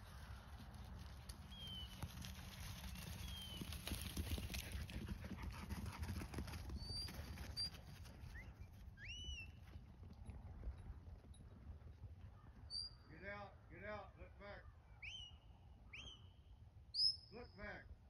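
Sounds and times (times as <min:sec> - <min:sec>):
sheep hooves running on turf: 0:00.0 - 0:12.9
bird chirps: 0:01.5 - 0:02.0, 0:12.4 - 0:13.1, 0:14.7 - 0:17.6.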